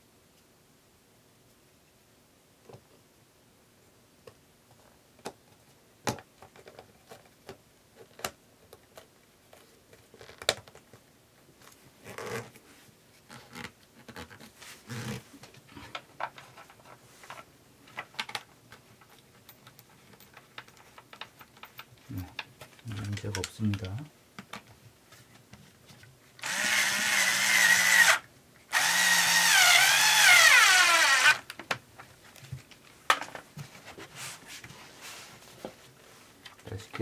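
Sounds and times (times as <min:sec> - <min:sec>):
hands handling speaker parts: 0:04.2 - 0:26.2
rustling: 0:06.4 - 0:26.5, 0:30.5 - 0:37.0.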